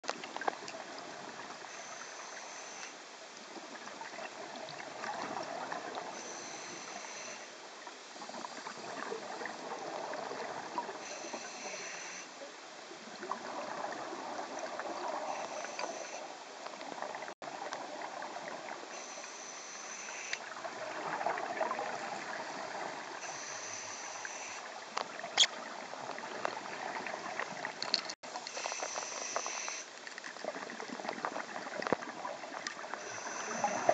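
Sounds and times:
regulator hiss on inhalation: 1.7s - 3.0s, 6.2s - 7.5s, 11.0s - 12.4s, 15.3s - 16.3s, 18.9s - 20.4s, 23.2s - 24.7s, 28.4s - 29.9s, 33.0s - 33.9s.

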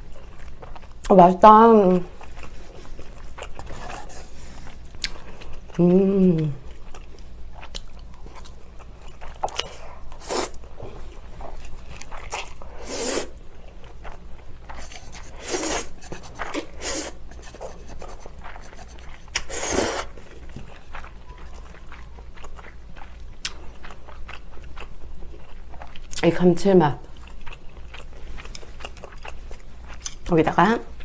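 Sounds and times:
chewing: 0.0s - 1.1s, 2.1s - 5.8s, 6.4s - 12.8s, 13.6s - 26.2s, 27.1s - 30.3s
person slurping noodles: 10.2s - 10.6s, 12.8s - 13.3s, 14.7s - 20.2s.

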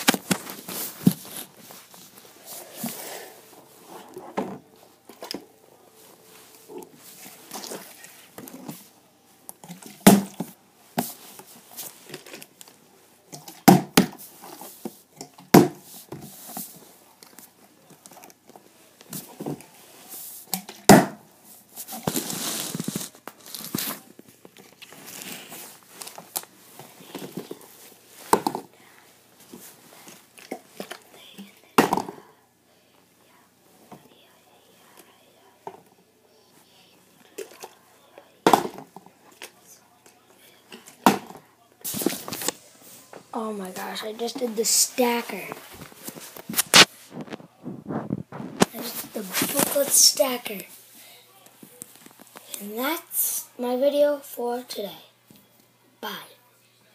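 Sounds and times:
plastic crinkling: 21.9s - 27.7s.

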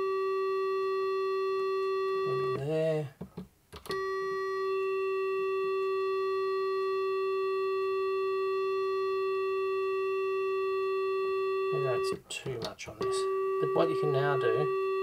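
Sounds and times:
steady square-wave synthesizer note: 13.0s - 15.0s.

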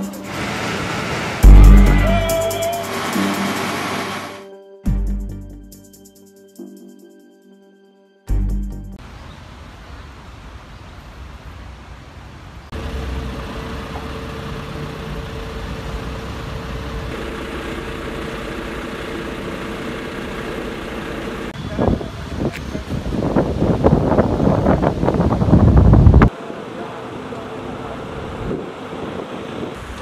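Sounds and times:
low engine rumble: 0.0s - 4.2s, 12.7s - 22.4s
steady hum: 0.0s - 4.3s
wind buffeting microphone: 21.6s - 26.3s.

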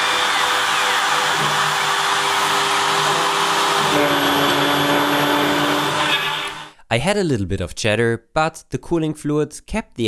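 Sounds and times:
cnc router cutting metal whine: 0.0s - 6.7s.

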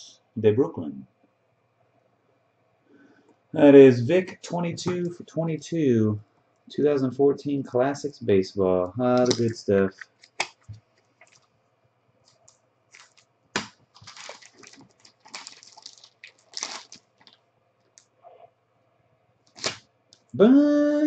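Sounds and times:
plastic wrapper crinkling and tearing: 9.2s - 10.6s, 11.2s - 11.5s, 12.3s - 18.1s, 19.5s - 19.8s.

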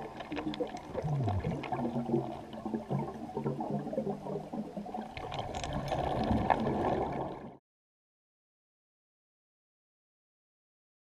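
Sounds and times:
underwater bubbling and gurgling: 0.0s - 7.6s.

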